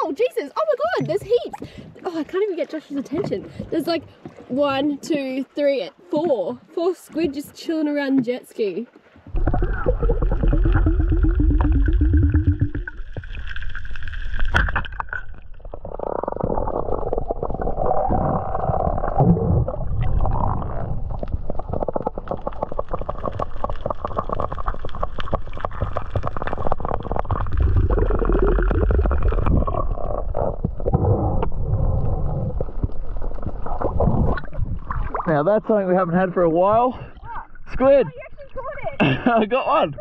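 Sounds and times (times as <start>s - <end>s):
muffled underwater gurgling: 9.3s - 13.2s, 15.7s - 39.0s
crackle of fine clicks: 20.0s - 34.0s.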